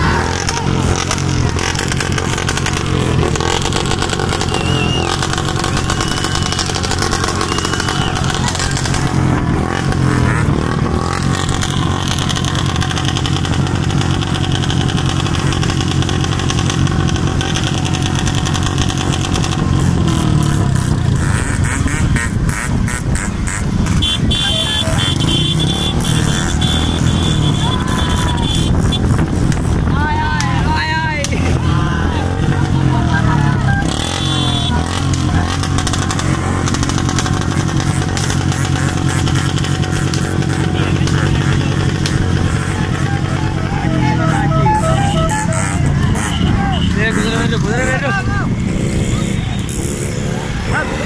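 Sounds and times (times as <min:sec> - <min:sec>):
motorcycle engines droning: 0:00.0 - 0:51.0
wind rushing over microphone: 0:27.8 - 0:33.1
steady high tone: 0:43.0 - 0:46.9.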